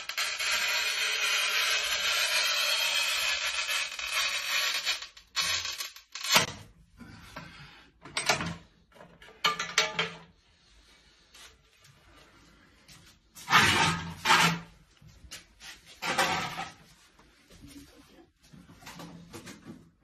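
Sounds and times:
tile cutter scoring ceramic tile: 0:00.0 - 0:06.6.

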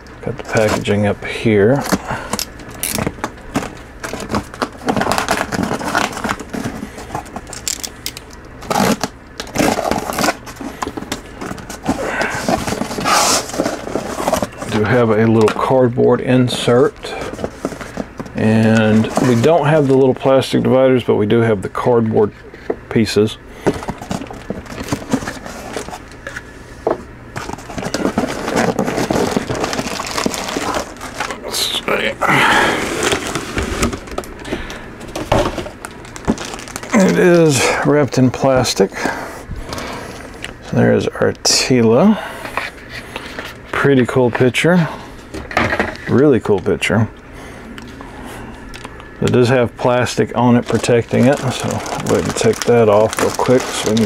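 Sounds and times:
cardboard box scraping and crackling: 0:03.0 - 0:07.4, 0:08.6 - 0:15.0, 0:16.6 - 0:19.9, 0:27.4 - 0:31.4, 0:32.7 - 0:34.1, 0:50.6 - 0:54.0
cardboard box being handled: 0:08.9 - 0:14.8, 0:27.4 - 0:31.4.

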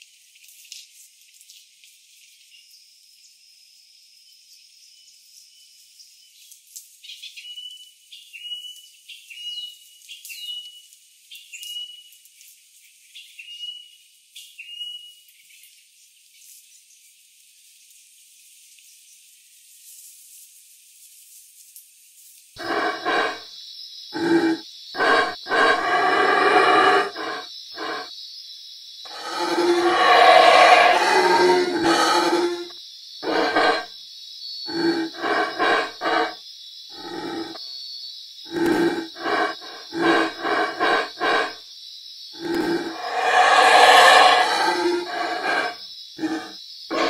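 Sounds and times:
faint forest ambience: 0:22.1 - 0:47.0
small animal calling: 0:22.6 - 0:23.4, 0:24.2 - 0:28.1, 0:29.1 - 0:33.8, 0:34.7 - 0:36.4, 0:37.0 - 0:37.6, 0:42.4 - 0:47.0.

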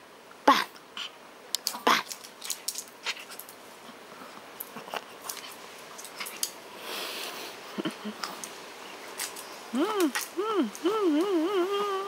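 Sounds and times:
dog claws clicking on wooden floor: 0:01.6 - 0:03.6.

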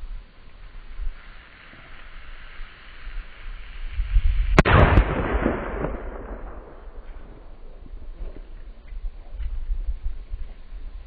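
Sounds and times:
explosion blast: 0:04.5 - 0:08.2
rumbling echo: 0:04.6 - 0:08.7.

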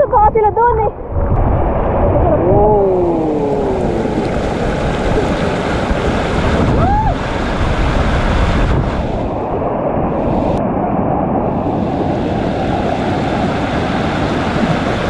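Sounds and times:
wind rushing over microphone: 0:00.8 - 0:15.0.

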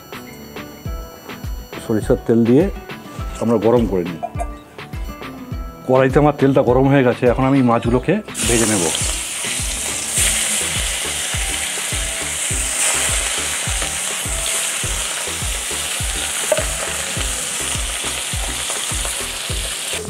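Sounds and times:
fish frying in hot oil: 0:08.4 - 0:20.0.

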